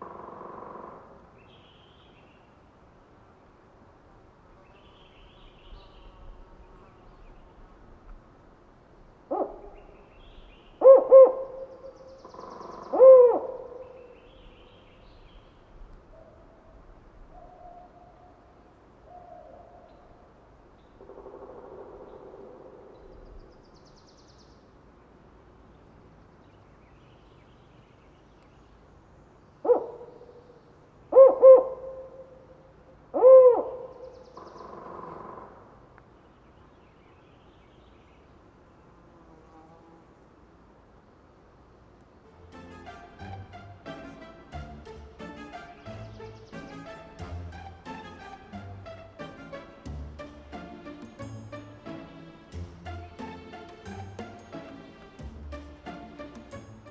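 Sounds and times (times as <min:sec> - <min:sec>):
owl hooting: 0:09.3 - 0:10.1, 0:10.7 - 0:14.5, 0:29.6 - 0:30.3, 0:31.1 - 0:35.7.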